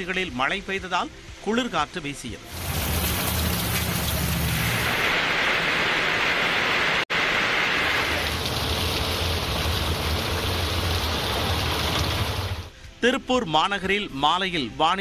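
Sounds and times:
heavy rain on a wet street: 2.5s - 12.7s.

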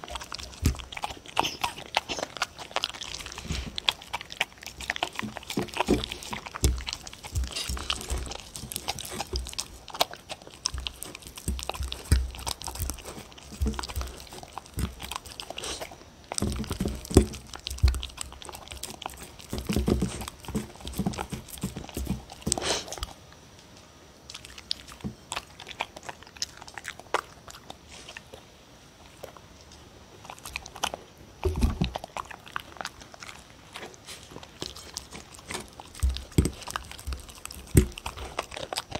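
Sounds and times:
dog chewing and licking food: 0.0s - 23.4s, 24.2s - 38.9s.

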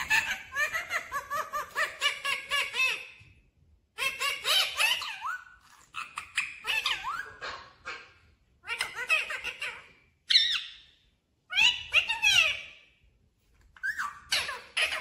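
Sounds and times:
parakeet chattering: 4.0s - 10.8s, 13.8s - 15.0s.

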